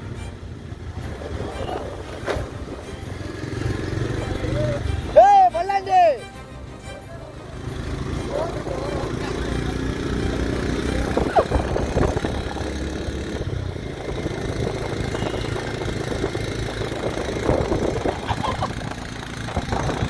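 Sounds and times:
motorcycle engine running: 0.4s - 5.2s, 6.8s - 20.0s
wind rushing over microphone: 0.8s - 3.2s, 11.0s - 20.0s.

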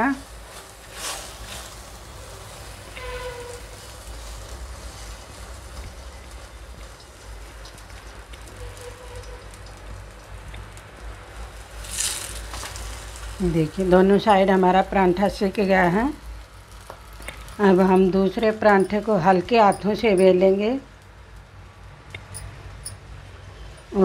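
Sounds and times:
flatbread sizzling in butter: 0.0s - 20.2s.

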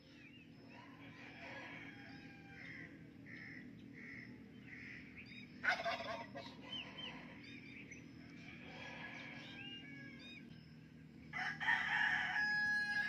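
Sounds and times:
birds giving soft notes: 0.0s - 11.1s.

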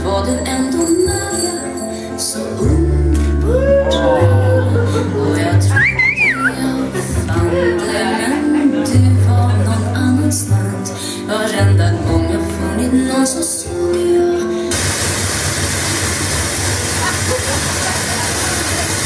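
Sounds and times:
waltz music over speaker: 0.0s - 14.8s
loud steady rushing noise: 14.7s - 19.0s.

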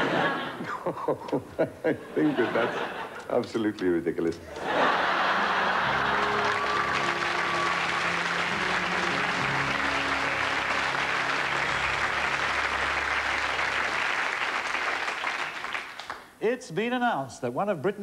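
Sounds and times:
sustained music notes: 4.6s - 14.5s
audience applauding: 4.6s - 16.4s.

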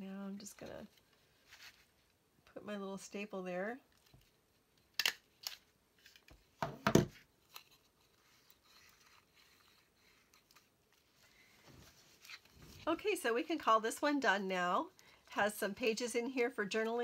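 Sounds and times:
faint paper rustling: 0.4s - 2.2s, 7.1s - 13.6s
mini stapler clicking shut: 5.0s - 5.6s.

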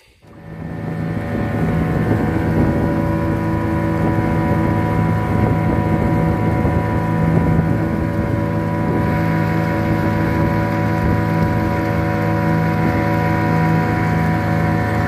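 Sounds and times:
boat motor droning: 0.2s - 15.0s.

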